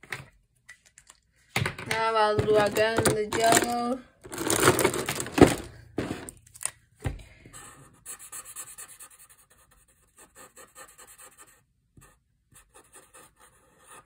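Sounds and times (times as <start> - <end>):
marker scratching on paper: 7.6 - 14.0.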